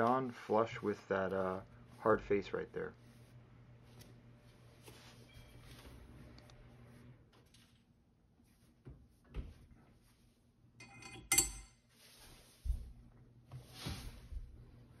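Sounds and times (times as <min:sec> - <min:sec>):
metal gear clinking: 0:10.8 - 0:11.7.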